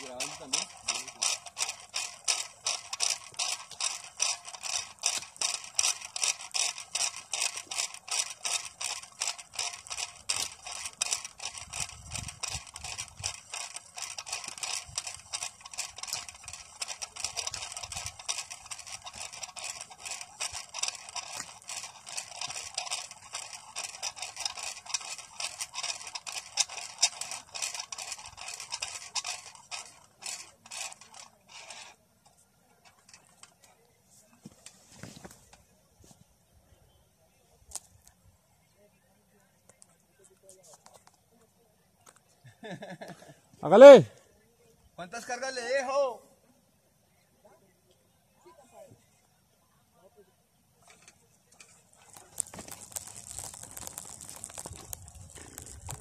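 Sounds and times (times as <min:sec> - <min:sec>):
winch pulley clicking on cable: 0:00.0 - 0:33.9, 0:50.8 - 0:56.0.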